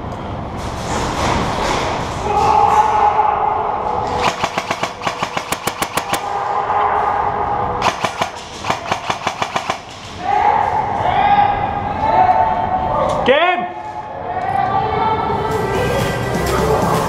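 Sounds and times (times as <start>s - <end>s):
airsoft rifle firing bursts: 4.2s - 6.2s, 7.8s - 10.1s.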